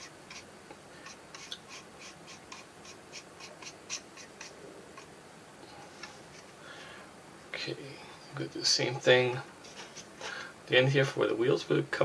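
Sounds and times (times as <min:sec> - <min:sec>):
paintbrush scratchy strokes: 0:00.0 - 0:05.1, 0:09.6 - 0:10.2.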